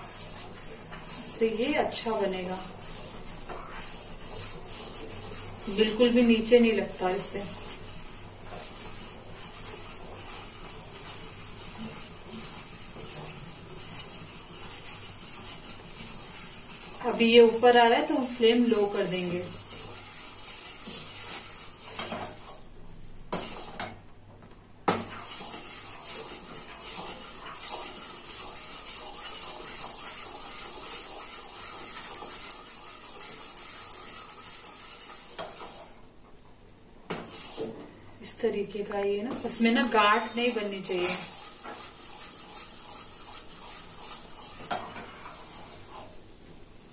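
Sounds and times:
spoon scraping a steel pan: 0:25.0 - 0:35.9, 0:39.4 - 0:46.2.

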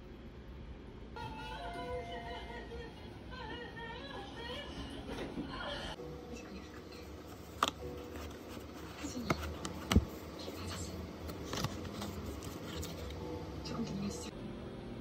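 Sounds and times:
paper rustling: 0:07.3 - 0:13.2.

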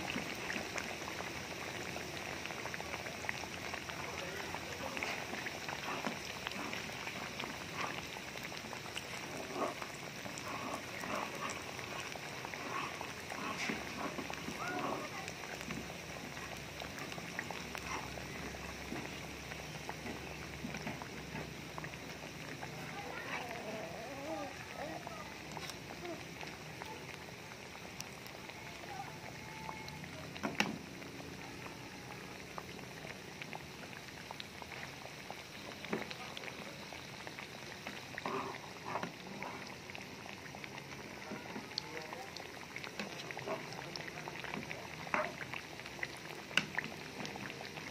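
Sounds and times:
hot oil sizzling and popping: 0:00.0 - 0:47.9.

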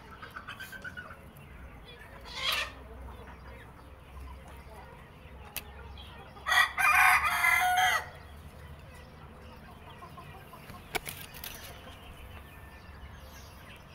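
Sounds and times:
rooster crowing: 0:06.5 - 0:08.2.

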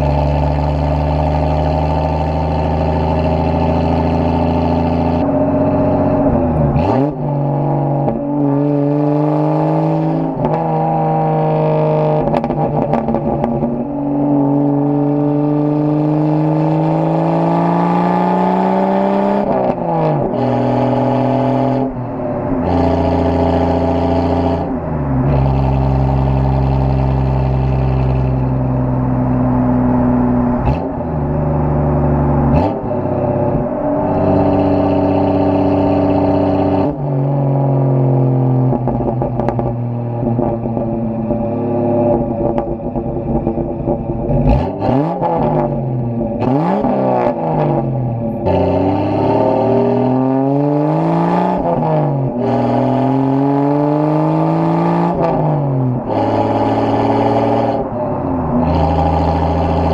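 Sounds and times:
muffled car exhaust revving: 0:00.0 - 0:59.9
exhaust cracks: 0:38.6 - 0:49.4.

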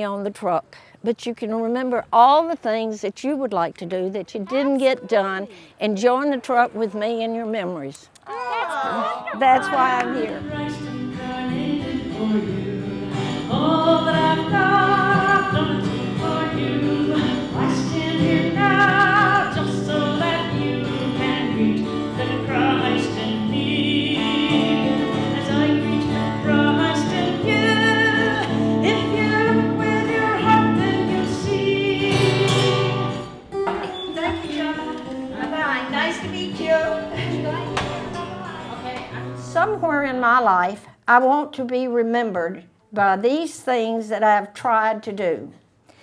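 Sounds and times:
woman singing with vibrato: 0:04.3 - 0:33.4, 0:34.0 - 0:40.1
strummed acoustic guitar: 0:09.5 - 0:39.8.

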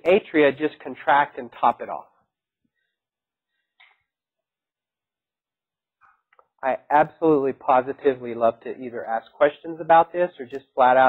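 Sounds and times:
person speaking: 0:00.0 - 0:02.1, 0:06.6 - 0:11.0.

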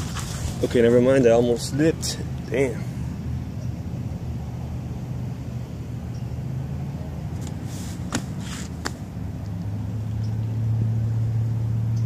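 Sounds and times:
road traffic hum: 0:00.0 - 0:12.0
brief rustle: 0:07.4 - 0:09.0.

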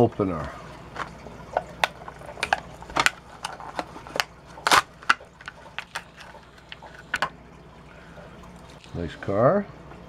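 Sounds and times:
plastic blister pack crackling: 0:00.9 - 0:07.2.

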